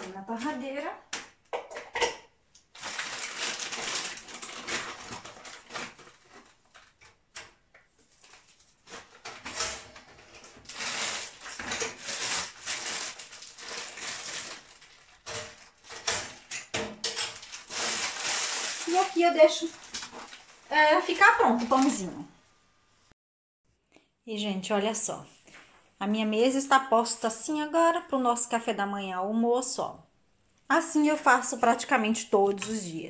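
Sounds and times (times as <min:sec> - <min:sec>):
plastic bag rustling: 0:02.7 - 0:07.4, 0:08.0 - 0:22.1.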